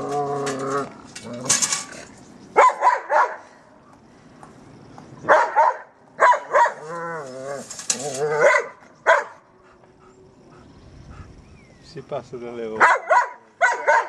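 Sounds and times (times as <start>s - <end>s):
dog barking: 2.6s - 3.4s, 5.3s - 6.8s, 8.4s - 9.4s, 12.8s - 14.0s.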